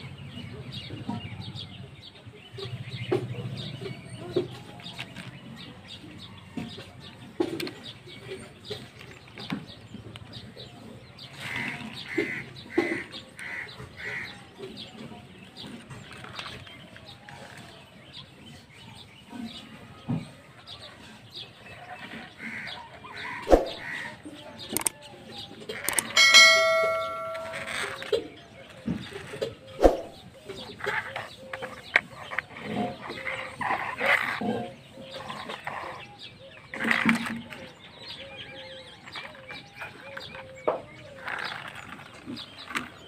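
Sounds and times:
birds chirping: 17.9s - 43.0s
toy vehicles knocking on concrete: 25.8s - 28.1s.

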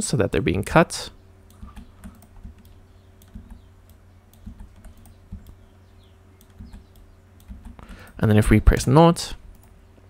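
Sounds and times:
faint steady hum: 0.0s - 10.0s
keyboard and mouse clicks: 1.5s - 5.6s, 6.4s - 8.2s, 9.5s - 9.8s.

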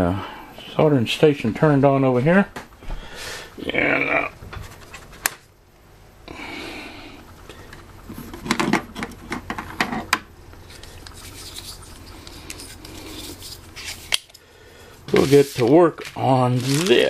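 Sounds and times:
tools rustling: 8.2s - 14.4s, 15.0s - 17.0s.

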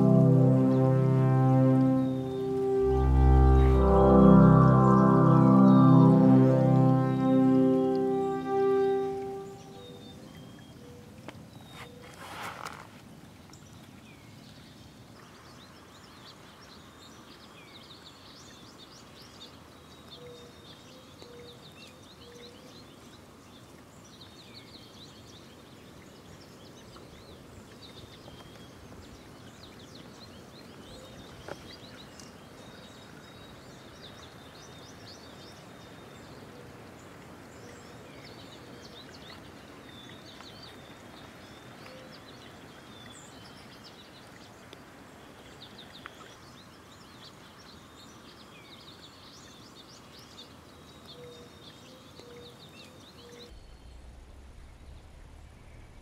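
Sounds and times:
steady outdoor hiss: 0.0s - 10.4s.

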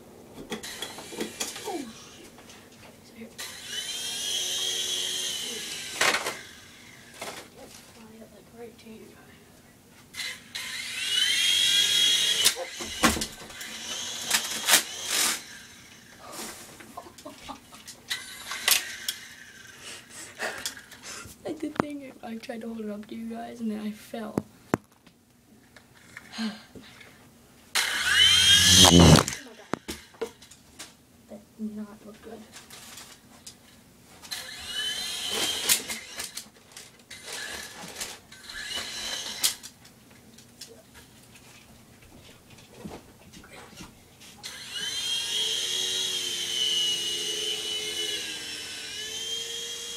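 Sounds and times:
toy helicopter motors whining: 3.4s - 7.4s, 10.1s - 16.3s, 18.1s - 21.2s, 27.8s - 30.1s, 34.3s - 39.7s, 44.4s - 49.9s.

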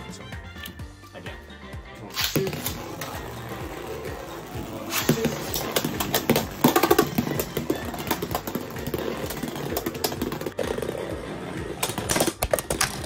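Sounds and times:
spinning tops whirring: 2.1s - 11.0s.

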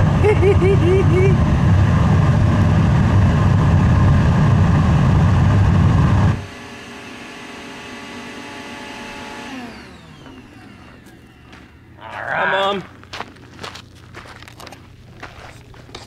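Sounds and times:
air blower whine: 0.0s - 12.8s
furnace roaring: 0.0s - 16.0s.

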